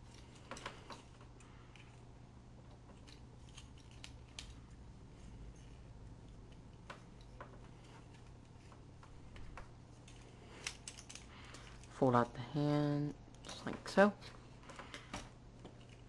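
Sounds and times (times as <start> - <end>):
plastic toy parts clicking: 3.0 - 4.6, 10.1 - 11.9.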